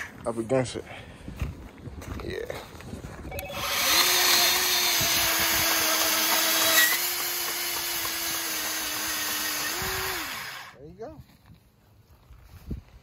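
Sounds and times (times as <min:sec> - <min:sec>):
band saw cutting metal tube: 0:03.5 - 0:10.8.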